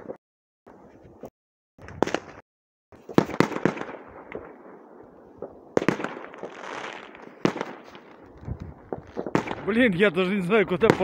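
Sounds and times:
crackling firework burst: 0:03.0 - 0:09.8
firework bangs: 0:03.0 - 0:10.0, 0:10.7 - 0:11.0.

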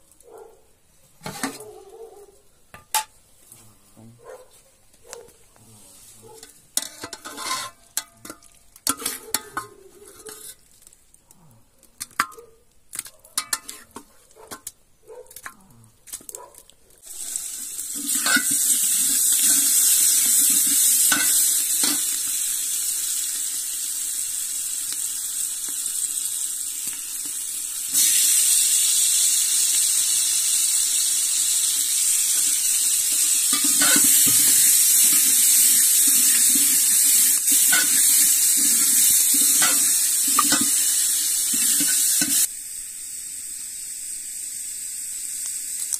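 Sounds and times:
metal utensils clinking in pot: 0:01.2 - 0:01.6, 0:06.4 - 0:10.6, 0:13.0 - 0:14.7, 0:17.9 - 0:22.3, 0:32.4 - 0:42.5
food sizzling in hot oil: 0:06.0 - 0:11.2, 0:13.0 - 0:14.0, 0:17.0 - 0:45.9.

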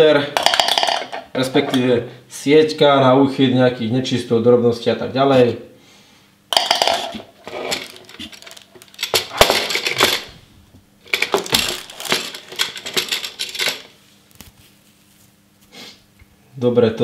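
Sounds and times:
hard plastic parts clattering: 0:00.4 - 0:01.8, 0:06.5 - 0:10.4, 0:11.0 - 0:14.0.

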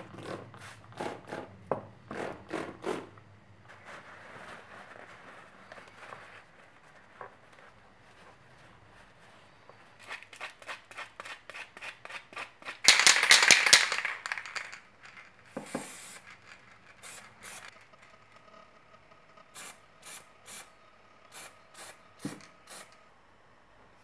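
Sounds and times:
aerosol spray hissing: 0:15.6 - 0:16.3, 0:17.0 - 0:17.7, 0:19.6 - 0:20.7, 0:21.3 - 0:23.0.

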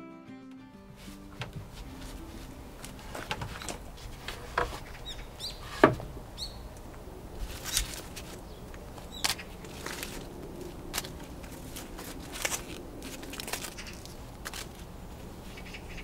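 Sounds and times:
rustle: 0:01.0 - 0:16.0
small bird chirping: 0:04.8 - 0:05.7, 0:06.4 - 0:06.8
wooden panels knocking and tapping: 0:05.7 - 0:06.2.

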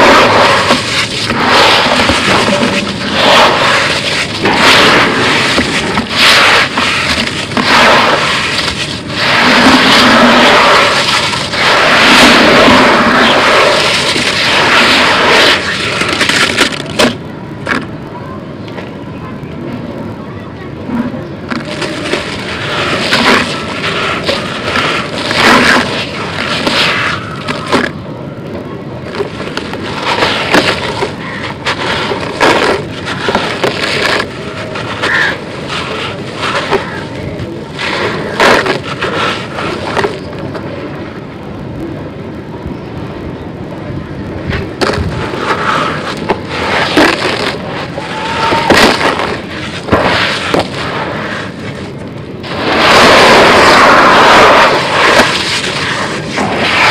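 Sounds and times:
hands crunching concrete grit: 0:00.0 - 0:17.2, 0:21.5 - 0:28.0, 0:29.1 - 0:40.3, 0:44.8 - 0:56.9
sharp cracks: 0:00.0 - 0:17.9, 0:21.5 - 0:28.0, 0:29.0 - 0:40.6, 0:44.5 - 0:56.9.

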